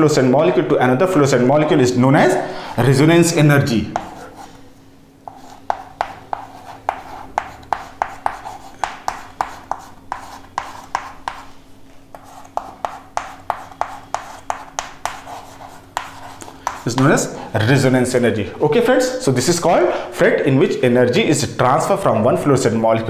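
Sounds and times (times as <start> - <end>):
faint steady hum: 0.0 - 23.0
chalk tapping and scraping on chalkboard: 3.9 - 4.6, 5.2 - 17.2.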